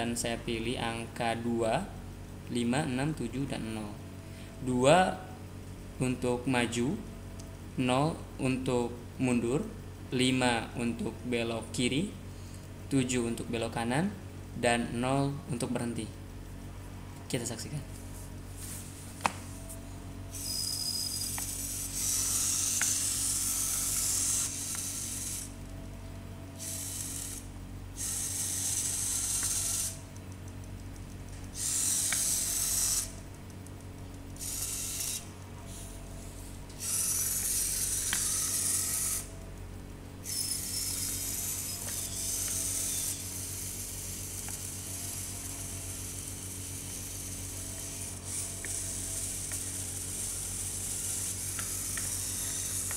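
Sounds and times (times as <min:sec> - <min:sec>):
small electric motors whirring: 0:20.3 - 0:25.9, 0:26.5 - 0:39.4, 0:40.2 - 0:52.9.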